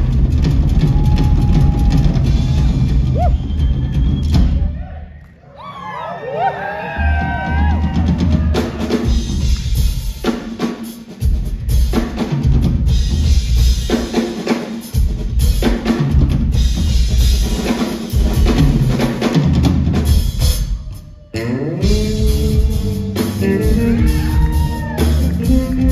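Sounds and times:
bass drum strokes: 21.8 - 25.9.

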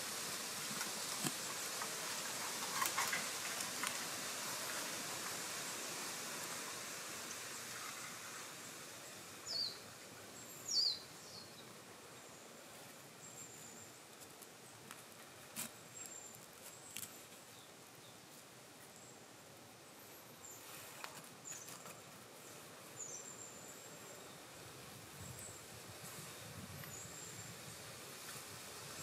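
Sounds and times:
faint outdoor hiss: 0.0 - 29.0
falling whistled bird calls: 10.5 - 11.6.

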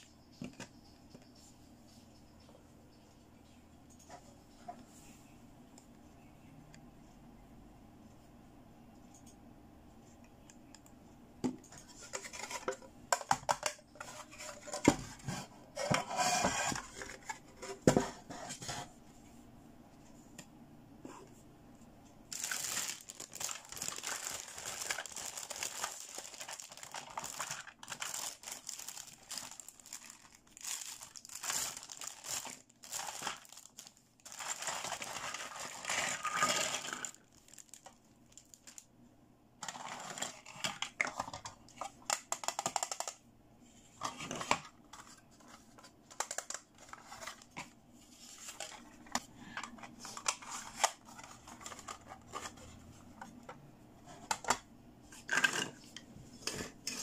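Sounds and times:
plastic packaging crinkling and tearing: 22.3 - 38.9, 39.6 - 41.0, 48.4 - 52.7.

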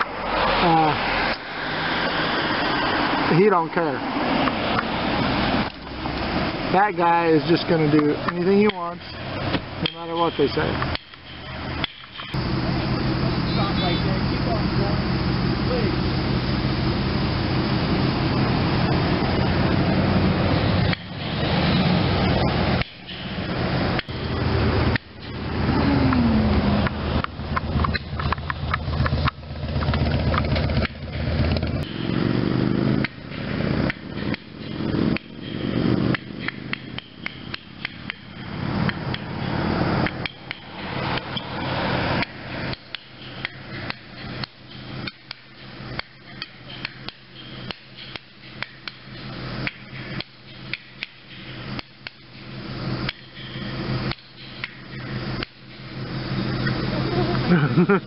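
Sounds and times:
vehicle passing: 0.0 - 45.1
vehicle engine idling: 0.0 - 58.0
sharp knocks and clicks: 10.8 - 12.4, 26.8 - 31.8, 33.0 - 39.3, 40.0 - 41.5, 42.2 - 55.7.

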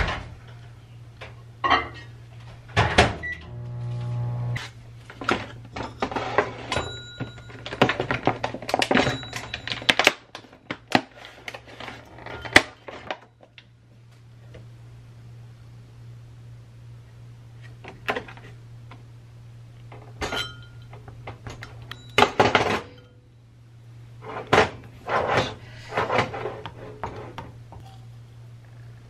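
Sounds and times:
microwave electric hum: 0.0 - 29.0.

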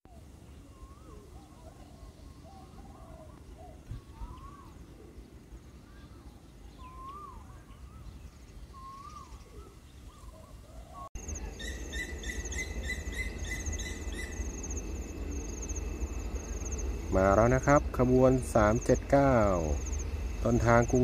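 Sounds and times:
birds whistling: 0.1 - 17.7
insects chirping: 11.2 - 21.0
low rumble: 11.2 - 21.0.

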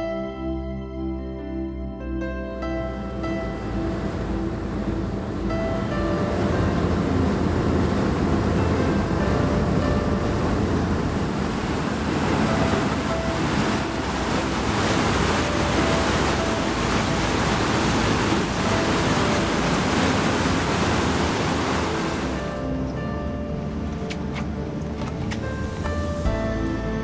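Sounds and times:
low rumble: 2.4 - 26.6
river water rushing: 2.9 - 26.3
wind buffeting microphone: 3.2 - 22.4.

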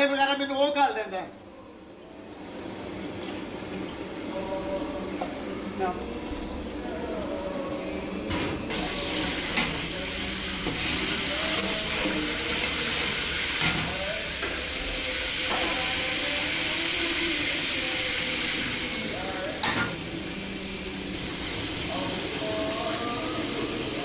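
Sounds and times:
onions sizzling in hot oil: 8.7 - 24.0.

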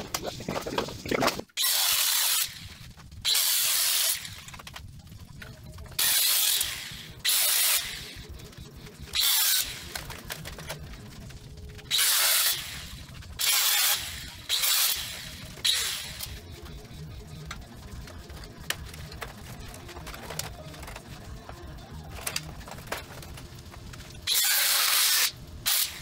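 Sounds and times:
power tool bursts on steel: 24.3 - 26.0.

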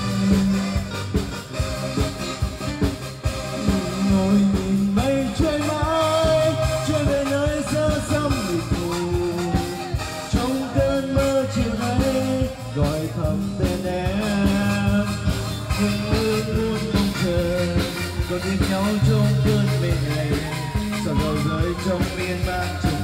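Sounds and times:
person singing: 0.0 - 2.0, 3.4 - 23.0
live band playing: 0.0 - 23.0.

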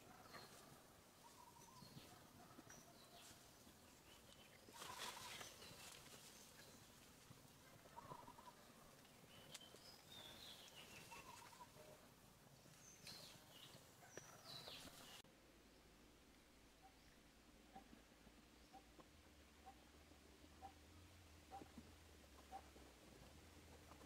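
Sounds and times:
faint forest ambience: 0.0 - 24.0
high chirping animal calls: 7.8 - 8.8, 9.4 - 12.0.

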